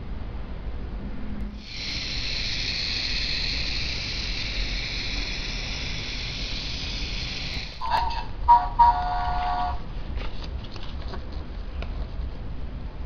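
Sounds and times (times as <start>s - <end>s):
wind-up toy whirring: 1.6s - 8.2s.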